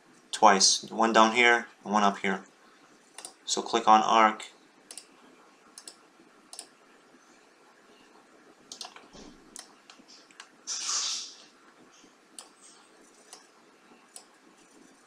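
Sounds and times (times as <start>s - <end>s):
computer mouse clicks: 3.2s - 3.4s, 4.9s - 5.1s, 5.8s - 6.8s, 8.7s - 10.6s, 12.3s - 12.6s, 13.2s - 13.5s, 14.1s - 14.4s
short soft hiss: 10.0s - 12.8s.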